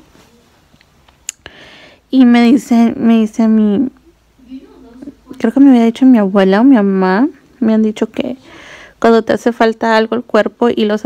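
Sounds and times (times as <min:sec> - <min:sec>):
mouth click: 0:00.8 - 0:01.6
soft breath in: 0:01.5 - 0:02.1, 0:08.4 - 0:09.0.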